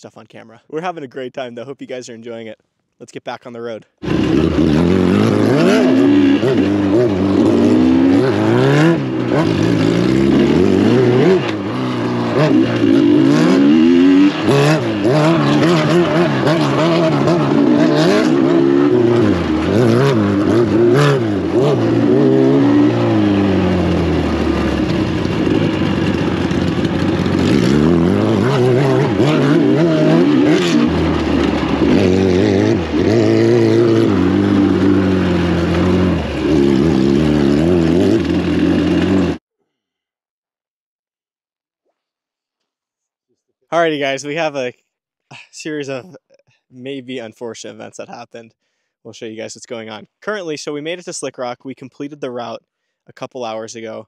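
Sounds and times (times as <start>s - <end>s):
motorcycle engine revving: 4.0s - 39.4s.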